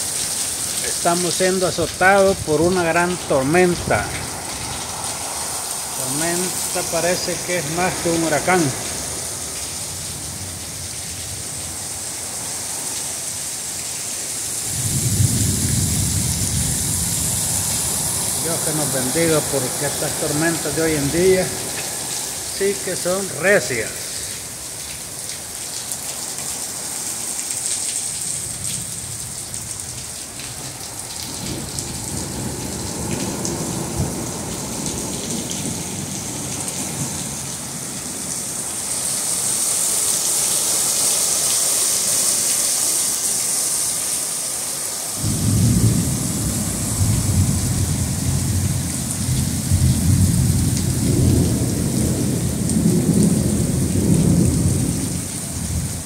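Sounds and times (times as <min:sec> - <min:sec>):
heavy rain pouring: 0:00.0 - 0:56.0
deep low thunder rumbling: 0:14.7 - 0:18.5, 0:45.2 - 0:56.0.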